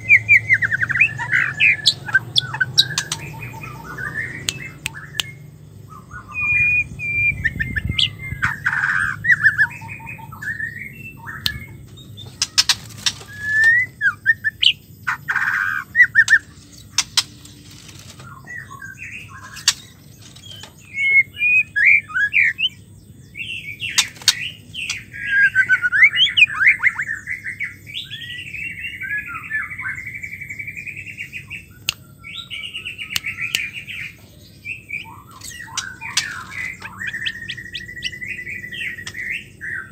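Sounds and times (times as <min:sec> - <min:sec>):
bird singing whistles and chatter: 0:00.0 - 0:22.8, 0:23.4 - 0:39.9
sharp clicks: 0:04.4 - 0:05.4.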